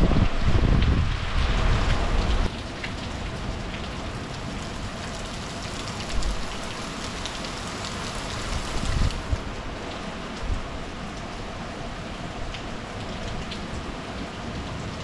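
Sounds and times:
wind rumbling on microphone: 0.0s - 2.5s, 8.4s - 9.7s
heavy rain falling: 0.0s - 15.0s
raindrops ticking close by: 1.9s - 15.0s.

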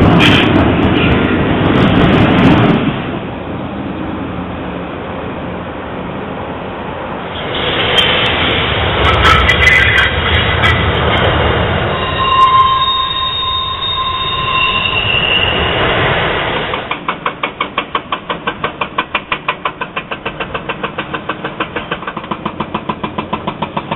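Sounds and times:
freight train rumbling: 0.0s - 23.9s
train wheel squeal: 11.8s - 17.0s
hydraulic breaker hammering concrete: 16.9s - 23.9s.

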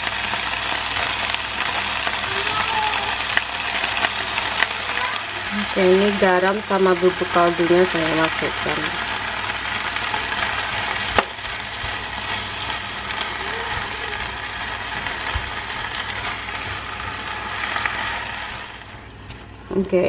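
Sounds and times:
vegetables sizzling in pan: 0.0s - 19.7s
spatula scraping pan: 5.8s - 19.4s.

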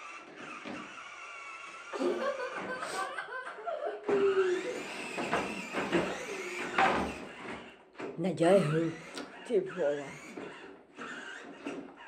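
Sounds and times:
electric toy car motor whine: 0.0s - 12.0s
laughter and giggling: 1.9s - 5.0s.

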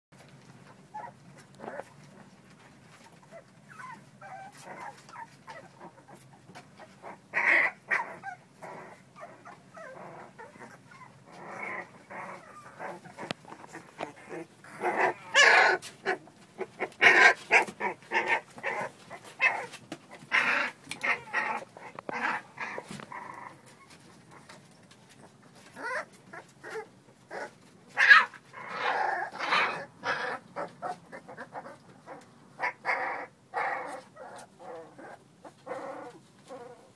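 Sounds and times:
puppies giving high cries: 3.0s - 24.5s, 25.6s - 35.8s.

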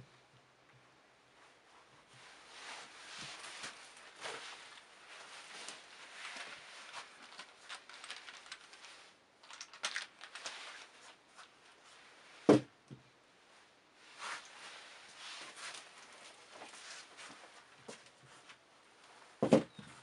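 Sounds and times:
shoes rustling on a table: 1.8s - 7.5s, 14.0s - 18.6s.

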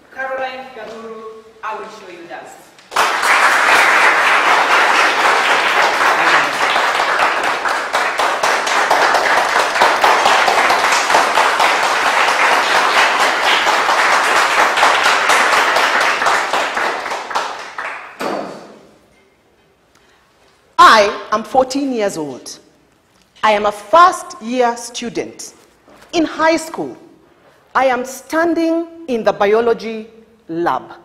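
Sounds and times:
audience applauding: 2.9s - 18.2s.

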